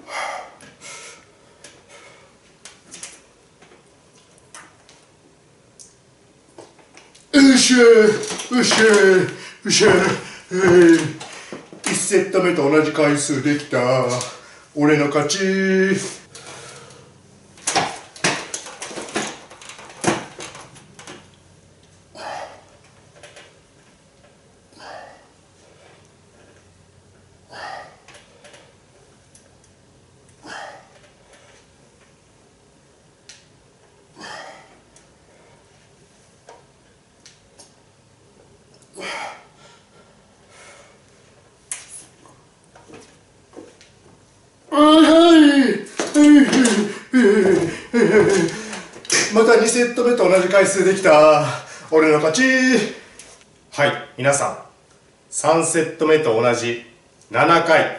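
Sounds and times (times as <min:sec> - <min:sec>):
man breathing hard: 0:00.0 - 0:02.4, 0:09.3 - 0:10.6, 0:11.2 - 0:11.7, 0:24.7 - 0:25.3, 0:27.5 - 0:28.6, 0:34.2 - 0:35.7, 0:46.6 - 0:49.0, 0:51.4 - 0:51.9
man hissing exhalations: 0:24.8 - 0:25.3, 0:27.5 - 0:28.0.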